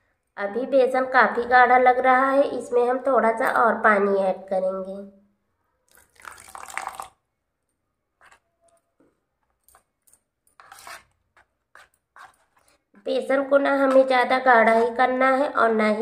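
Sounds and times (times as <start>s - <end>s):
spoon stirring thick batter: 5.9s - 15.6s
spoon scraping bowl: 8.2s - 8.9s, 9.5s - 15.2s.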